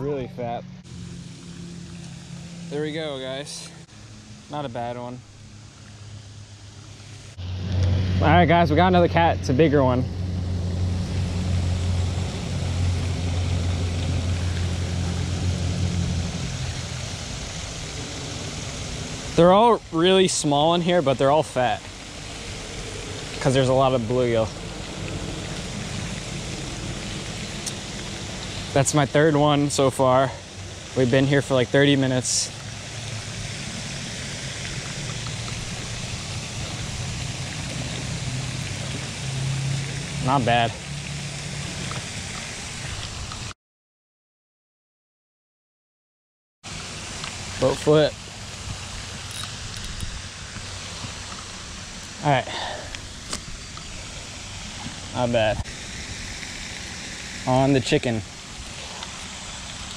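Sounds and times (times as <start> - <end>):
low steady hum: 0.0 - 42.7
low motor drone: 0.0 - 42.8
even hiss: 0.0 - 43.5, 46.7 - 59.9
fountain spray splashing: 0.0 - 43.5, 46.7 - 59.9.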